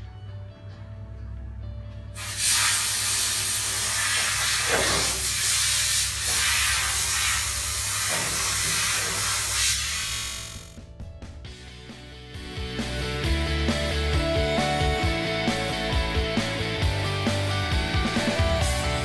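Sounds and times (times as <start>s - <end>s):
loud steady hiss: 2.2s - 10.8s.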